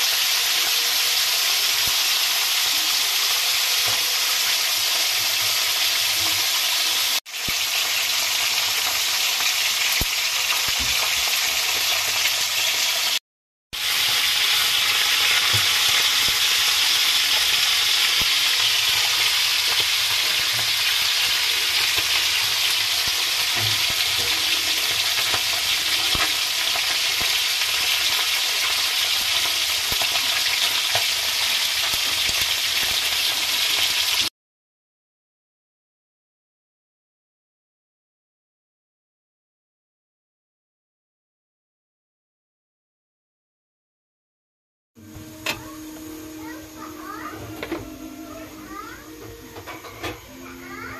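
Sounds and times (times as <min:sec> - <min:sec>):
fish sizzling in hot oil: 0:00.0 - 0:13.2, 0:13.8 - 0:34.3, 0:45.4 - 0:47.4.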